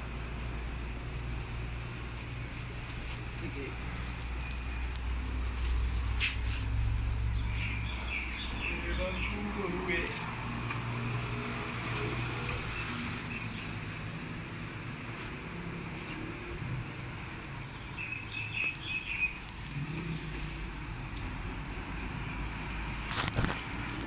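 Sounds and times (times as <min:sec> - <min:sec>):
road traffic rumble: 0:00.0 - 0:24.0
birds chirping: 0:01.7 - 0:10.3, 0:11.6 - 0:14.4, 0:17.4 - 0:20.9.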